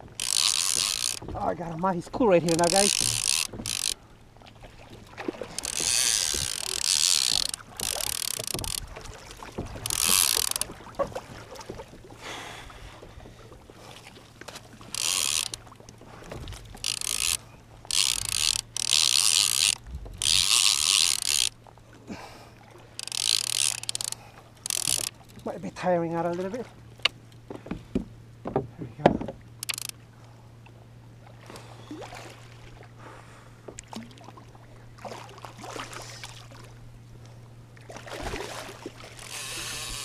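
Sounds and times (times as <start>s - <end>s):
fishing reel ratcheting: 0.0s - 1.3s, 2.2s - 4.0s, 5.5s - 8.9s, 9.8s - 10.7s, 14.9s - 15.7s, 16.6s - 21.6s, 23.0s - 25.5s, 29.6s - 30.0s, 39.2s - 40.0s.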